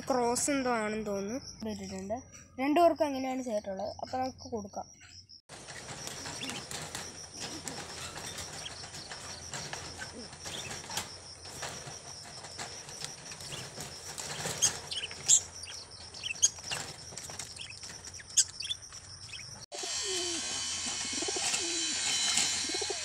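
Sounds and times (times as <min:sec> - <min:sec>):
pigeons flapping wings: 0:05.5 - 0:18.0
pigeons cooing: 0:05.6 - 0:18.7, 0:19.3 - 0:23.0.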